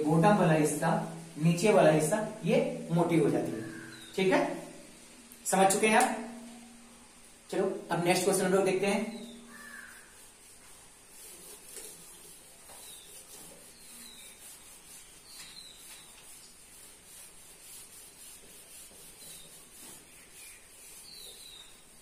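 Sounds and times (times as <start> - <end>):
eraser rubbing on whiteboard: 9.2 - 22.0.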